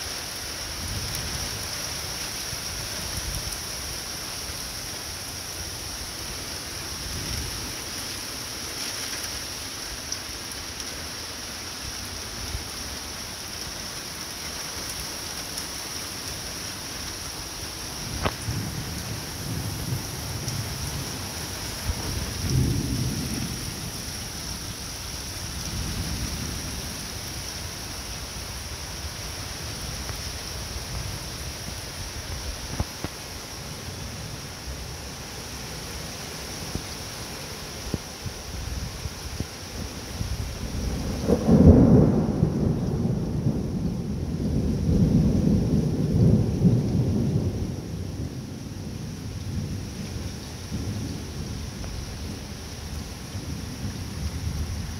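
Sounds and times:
heavy rain: 0.0s - 54.9s
thunder rumbling: 18.1s - 24.2s, 40.4s - 50.0s.

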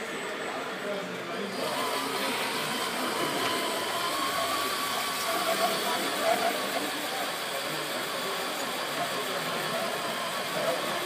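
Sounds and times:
model truck motor whine: 0.0s - 11.0s.

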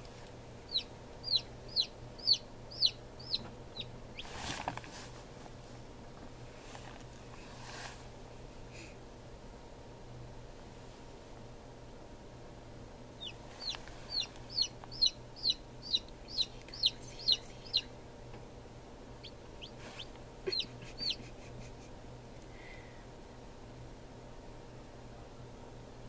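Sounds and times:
chick peeping: 0.7s - 4.4s, 13.2s - 17.9s, 19.2s - 21.4s.

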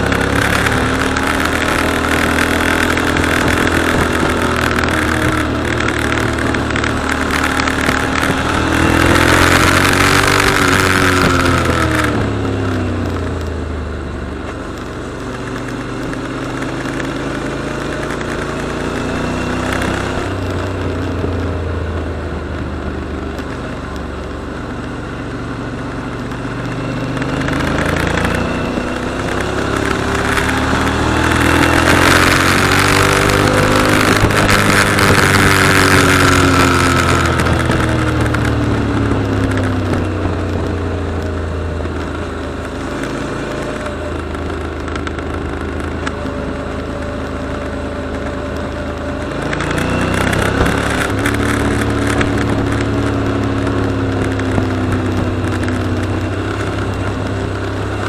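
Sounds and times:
wind rushing over microphone: 0.0s - 13.6s, 26.0s - 58.0s
motorcycle engine revving: 0.0s - 58.0s.

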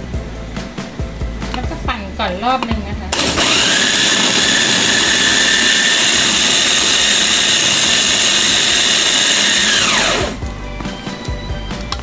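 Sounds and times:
electric food chopper whining: 3.1s - 10.4s.

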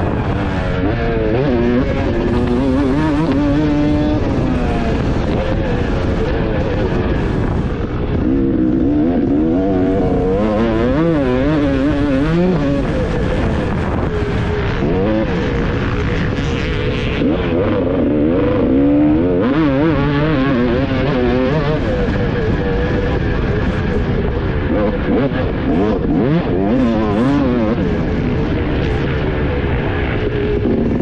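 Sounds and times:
motocross bike engine revving: 0.0s - 31.0s
wind noise: 0.0s - 31.0s.

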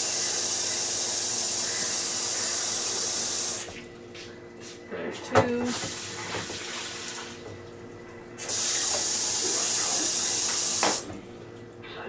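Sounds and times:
kitchen faucet running: 0.0s - 3.7s, 5.6s - 11.1s.

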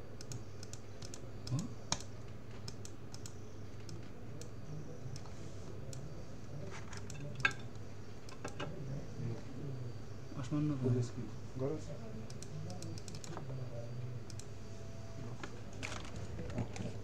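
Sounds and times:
steady low hum: 0.0s - 17.0s
keyboard and mouse clicks: 0.2s - 4.1s, 8.2s - 8.7s, 12.3s - 13.5s.

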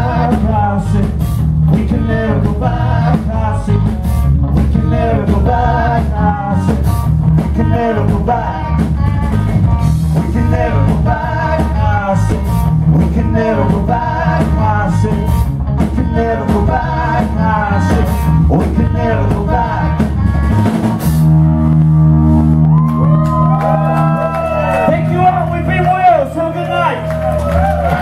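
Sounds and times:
man singing lead vocal: 0.0s - 9.5s, 10.1s - 20.2s
drum kit: 0.0s - 28.0s
live rock band playing: 0.0s - 28.0s.

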